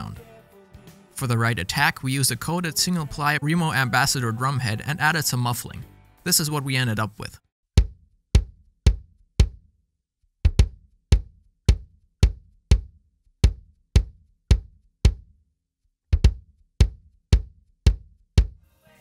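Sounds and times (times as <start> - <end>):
bass drum kick thumps: 7.8 - 9.7, 10.4 - 15.3, 16.1 - 18.6.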